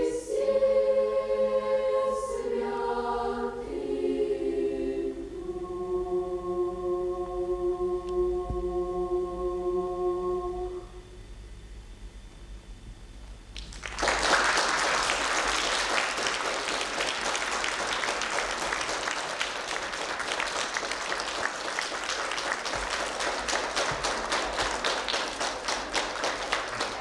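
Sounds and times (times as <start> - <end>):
audience applause: 13.6 - 27.0.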